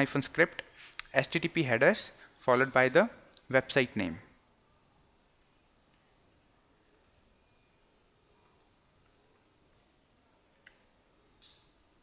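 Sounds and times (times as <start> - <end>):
faint keyboard typing: 4.4 - 7.4, 8.4 - 11.6.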